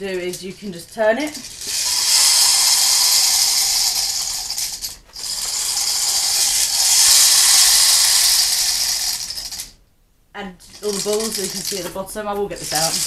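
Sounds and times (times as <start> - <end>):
plastic beads rattling in tube: 0.0 - 9.8, 10.6 - 13.0.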